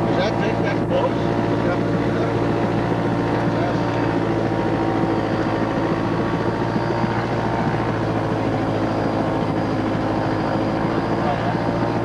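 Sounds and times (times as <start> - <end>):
airplane engine and propeller humming: 0.0 - 12.0.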